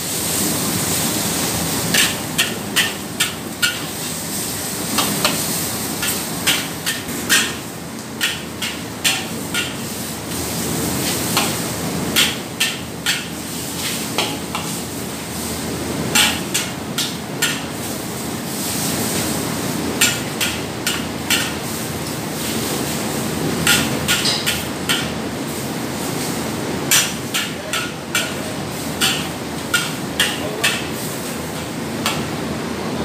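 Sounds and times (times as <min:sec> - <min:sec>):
frying hiss: 0:00.0 - 0:32.8
gas burner: 0:00.0 - 0:33.0
metal spatula clanking on wok: 0:06.0 - 0:07.6, 0:08.2 - 0:09.8, 0:16.1 - 0:17.7, 0:20.0 - 0:21.6, 0:23.6 - 0:25.1, 0:26.9 - 0:31.0.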